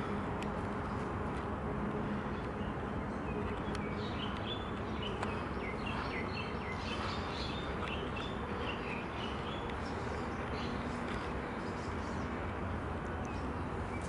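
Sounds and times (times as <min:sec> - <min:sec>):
outdoor background rumble: 0:00.0 - 0:14.0
birds chirping: 0:01.9 - 0:14.0.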